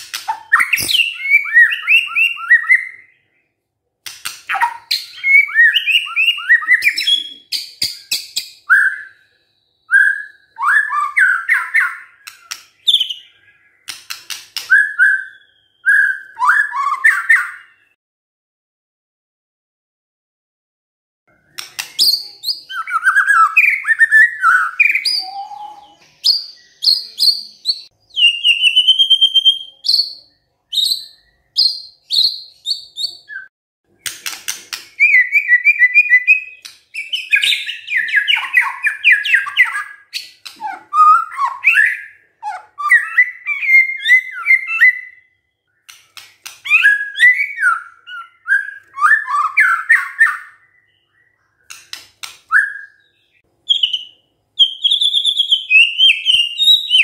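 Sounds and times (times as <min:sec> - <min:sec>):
bird singing whistled song: 0:00.1 - 0:03.5, 0:04.5 - 0:18.0, 0:21.4 - 0:57.0
rapid bird clicking notes: 0:04.0 - 0:04.6, 0:12.2 - 0:12.8, 0:13.8 - 0:14.7, 0:34.0 - 0:35.0.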